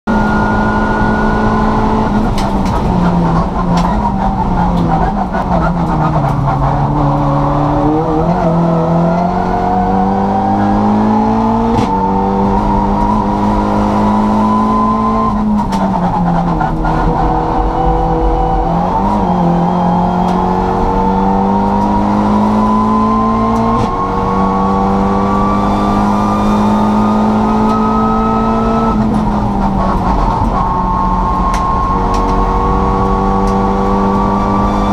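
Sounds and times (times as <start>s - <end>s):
race car engine revving: 0.1s - 34.9s.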